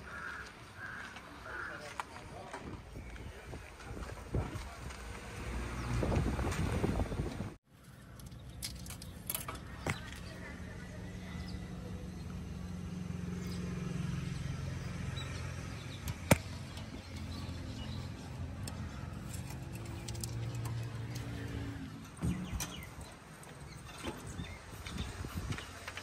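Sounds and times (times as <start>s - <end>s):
sharp metallic click: 16.0s - 17.2s.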